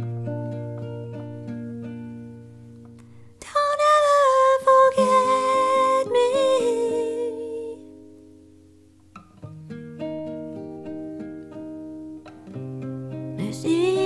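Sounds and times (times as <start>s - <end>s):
acoustic guitar notes: 0.0s - 14.0s
woman's wordless vocal: 13.4s - 14.0s.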